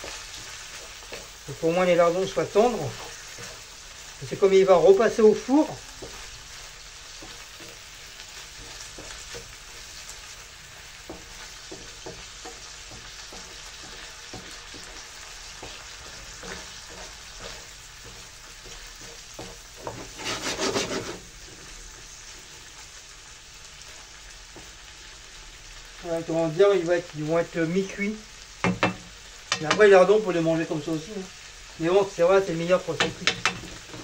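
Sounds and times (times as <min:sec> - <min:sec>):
wooden spatula scraping a pan: 0:00.0 - 0:23.1, 0:32.4 - 0:34.0
onions sizzling in a frying pan: 0:00.0 - 0:34.0.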